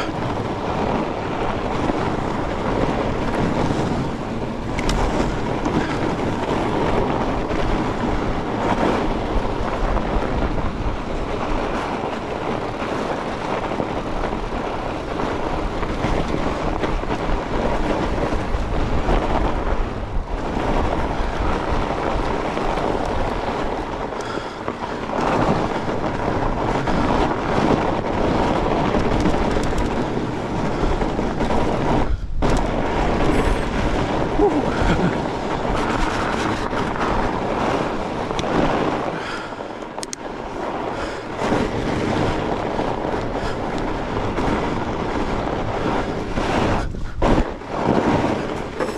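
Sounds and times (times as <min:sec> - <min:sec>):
bike rattling: 0:00.0 - 0:48.9
bike tyres rumbling over ground: 0:00.0 - 0:48.9.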